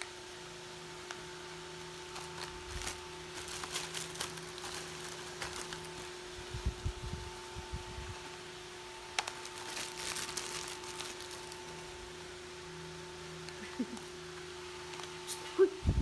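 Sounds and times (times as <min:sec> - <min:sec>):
steady faint hum: 0:00.0 - 0:16.0
plastic packaging crinkling: 0:01.8 - 0:06.8, 0:09.1 - 0:12.0.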